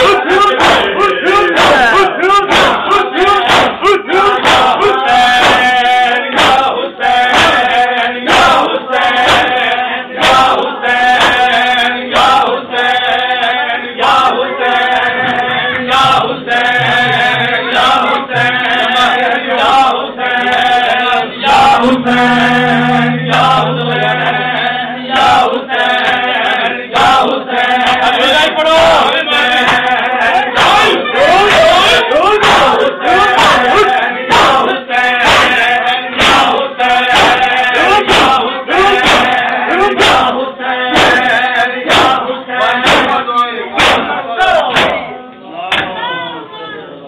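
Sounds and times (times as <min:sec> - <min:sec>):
men chanting together: 0:00.0 - 0:45.1
hands slapping chests: 0:00.5 - 0:01.0, 0:02.5 - 0:05.7, 0:06.3 - 0:06.7, 0:11.2 - 0:11.5, 0:37.1 - 0:38.4, 0:39.0 - 0:39.4.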